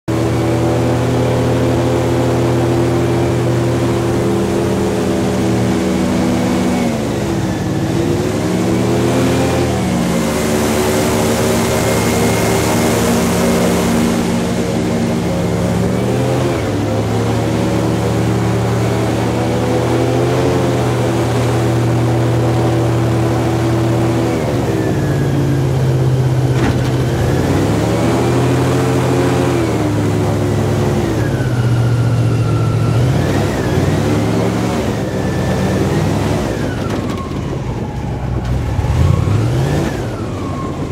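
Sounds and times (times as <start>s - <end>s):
airboat engine and propeller: 0.1s - 40.9s.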